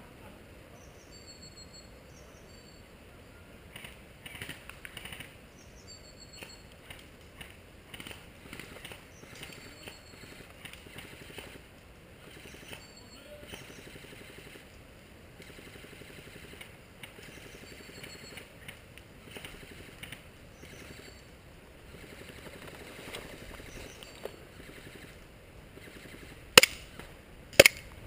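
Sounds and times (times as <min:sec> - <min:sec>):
bird chirps: 0:00.7 - 0:03.4, 0:05.5 - 0:06.8, 0:09.0 - 0:11.4, 0:12.3 - 0:14.6, 0:17.2 - 0:18.7, 0:20.5 - 0:22.4, 0:23.2 - 0:25.2
footsteps outdoors: 0:16.4 - 0:25.8.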